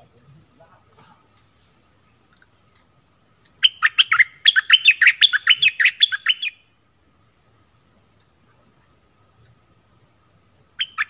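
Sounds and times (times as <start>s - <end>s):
bird singing slurred notes: 3.5s - 6.7s.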